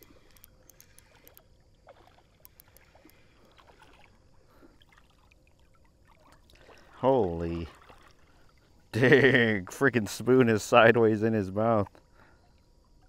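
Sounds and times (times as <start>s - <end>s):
light ticks: 0.0s - 1.5s, 2.3s - 3.2s
river water lapping: 0.0s - 13.0s.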